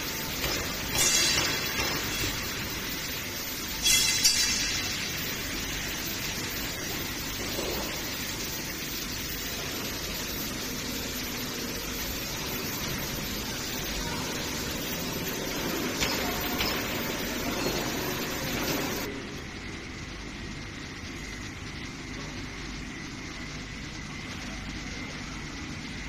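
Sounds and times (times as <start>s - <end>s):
testing machine drive running: 4.8s - 19.4s.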